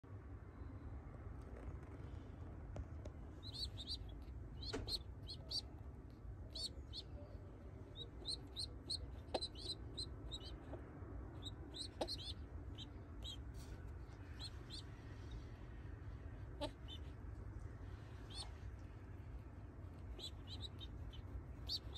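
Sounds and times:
pigeon squabs peeping: 3.4 - 5.8, 6.4 - 15.5, 16.4 - 21.9.

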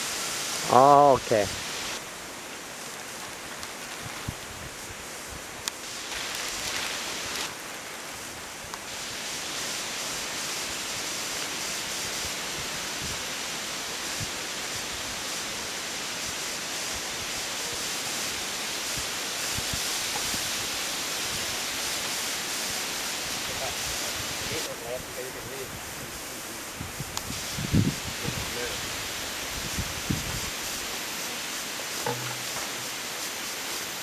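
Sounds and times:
outdoor rushing hiss: 0.0 - 34.0
faint knocks: 32.0 - 32.8.

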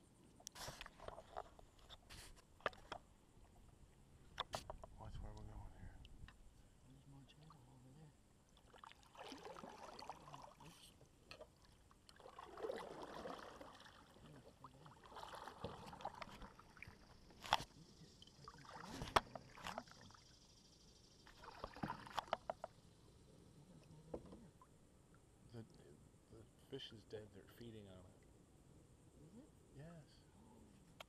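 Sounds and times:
paddle strokes through water: 0.5 - 3.0, 8.6 - 20.4, 21.3 - 22.7.

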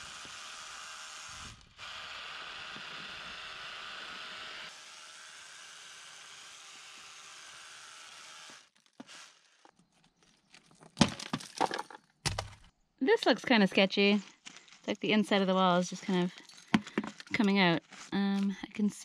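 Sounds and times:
power drill boring into stone: 0.0 - 9.8
stone knocking and clattering: 10.6 - 12.7, 16.5 - 17.4.

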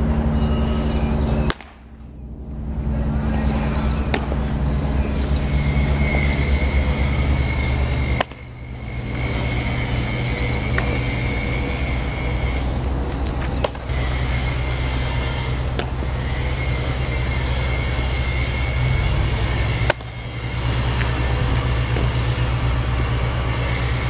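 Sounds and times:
low outdoor background hum: 0.0 - 24.0.

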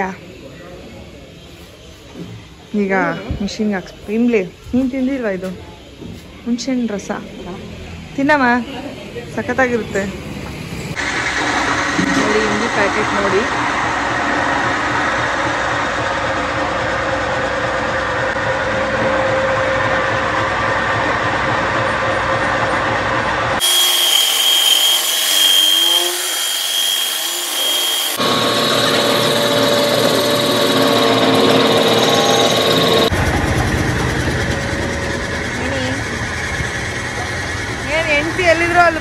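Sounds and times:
electric flour mill grinding: 11.0 - 33.4.

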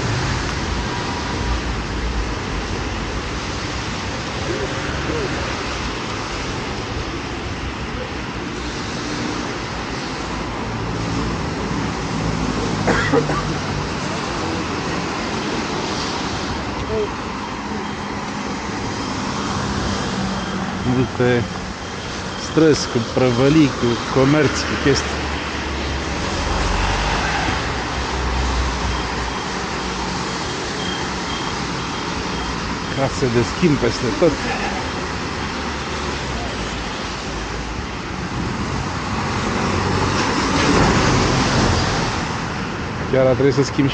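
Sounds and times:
passing car engines: 0.0 - 43.9
tyres hissing on wet road: 0.0 - 43.9
faint high beeps: 16.8 - 24.6, 30.4 - 35.2.

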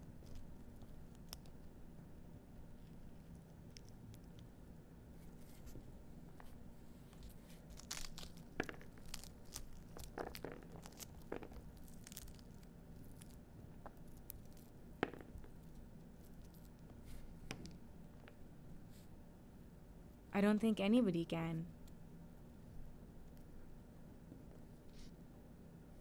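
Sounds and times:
small clicks and snaps: 0.0 - 1.8, 2.8 - 4.5, 7.1 - 16.9
fruit husk tearing by hand: 7.3 - 13.4.

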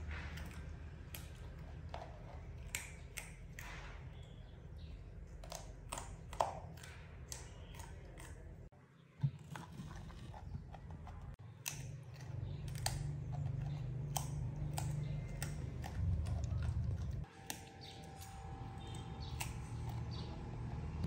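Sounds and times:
monkey chewing carrot: 9.4 - 20.6.

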